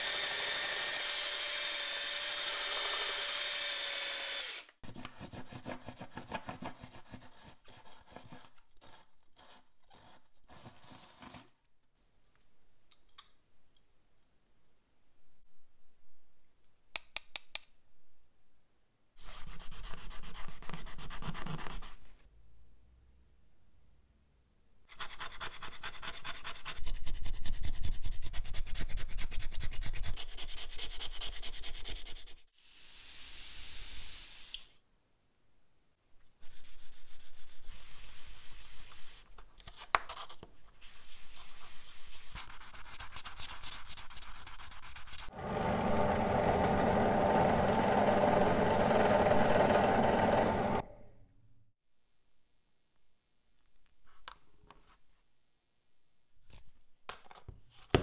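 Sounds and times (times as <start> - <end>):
sanding and rubbing: 36.4 - 39.3, 40.7 - 45.4.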